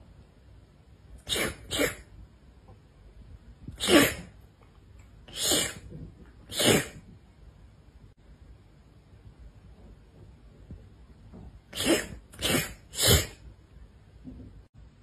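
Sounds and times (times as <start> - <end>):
cat sneezing: 1.2 - 2.1, 3.7 - 4.4, 5.3 - 7.1, 11.7 - 13.5.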